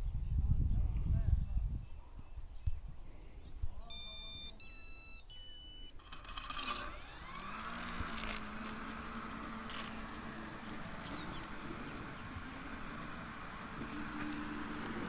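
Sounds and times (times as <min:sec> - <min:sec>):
robot lawn mower motors whining: 0:05.4 - 0:15.0
scraping rustle: 0:07.4 - 0:15.0.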